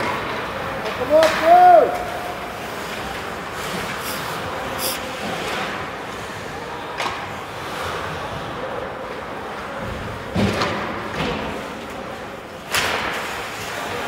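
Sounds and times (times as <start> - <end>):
arena noise: 0.0 - 10.9.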